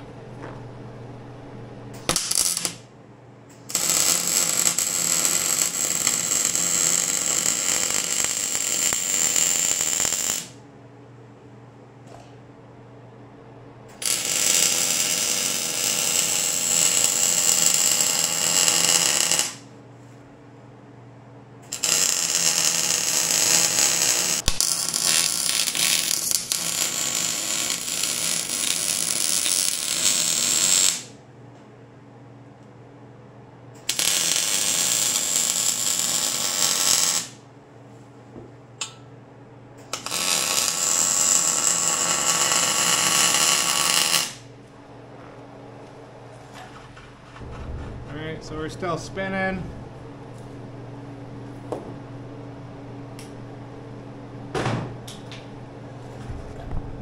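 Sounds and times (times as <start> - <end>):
welder arc crackling: 2.0 - 2.8, 3.5 - 10.6, 14.0 - 19.7, 21.7 - 31.1, 33.8 - 37.4, 39.9 - 44.5.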